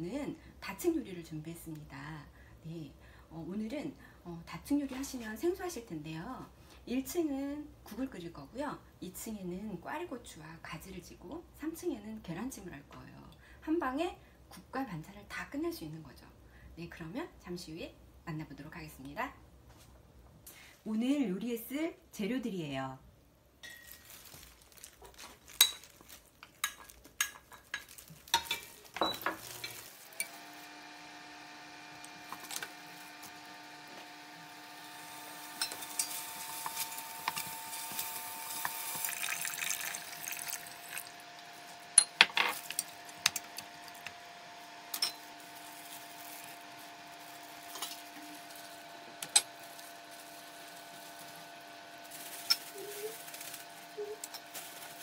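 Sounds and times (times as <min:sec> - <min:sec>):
light sizzle: 0:23.6 - 0:55.0
steady electric hum: 0:27.9 - 0:55.0
utensil scraping a metal pot: 0:35.5 - 0:39.4.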